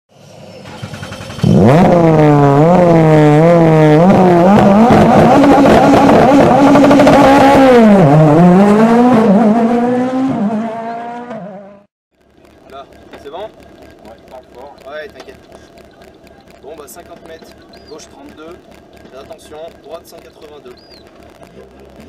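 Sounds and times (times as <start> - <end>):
race car engine accelerating: 0.4 - 11.9.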